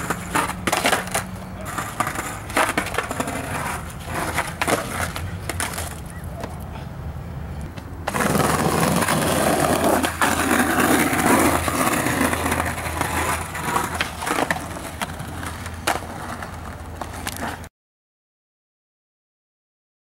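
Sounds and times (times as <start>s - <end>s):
skateboard wheels rolling on bricks: 0.0s - 6.4s, 7.7s - 17.7s
skateboard clacks: 0.0s - 6.8s, 7.6s - 17.7s.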